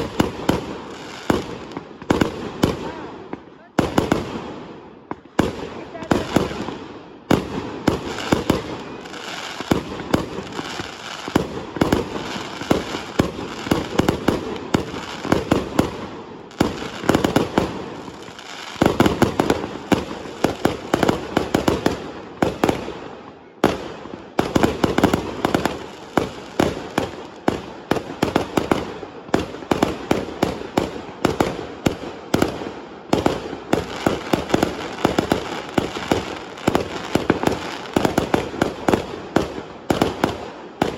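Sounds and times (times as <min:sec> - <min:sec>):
fireworks bangs and crackling: 0:00.0 - 0:40.9.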